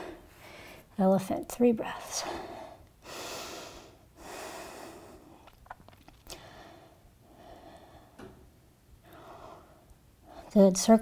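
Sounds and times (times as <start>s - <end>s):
deep breathing through nose: 2.2s - 5.4s, 6.3s - 8.2s.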